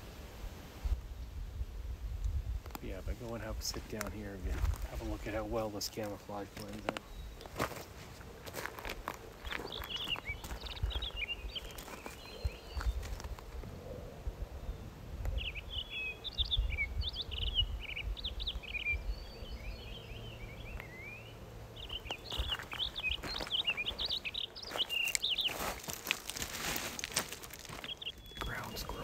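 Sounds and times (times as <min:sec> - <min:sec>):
songbird chirping: 0:02.8 - 0:13.7, 0:14.5 - 0:29.0
footsteps crunching on loose rock: 0:03.2 - 0:13.5, 0:21.9 - 0:29.0.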